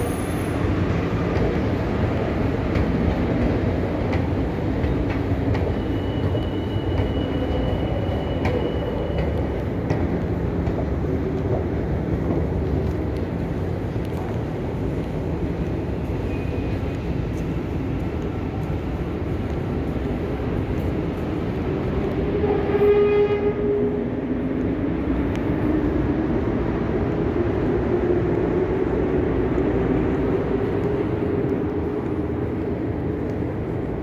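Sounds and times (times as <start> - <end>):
metro train rumble: 0.0 - 34.0
short horn-like tone: 22.4 - 23.9.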